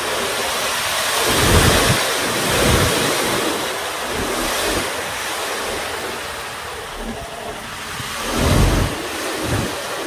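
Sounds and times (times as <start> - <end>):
low rumbles: 3.8 - 9.7.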